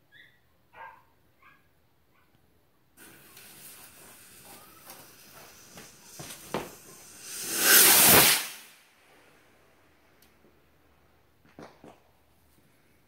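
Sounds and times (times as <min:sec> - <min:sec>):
firework spraying hiss: 0:03.0 - 0:08.9
firework crackles: 0:03.0 - 0:09.1.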